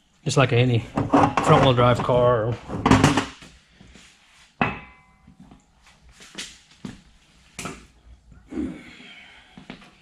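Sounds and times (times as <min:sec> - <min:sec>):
metallic clank with ring: 0:04.7 - 0:05.2.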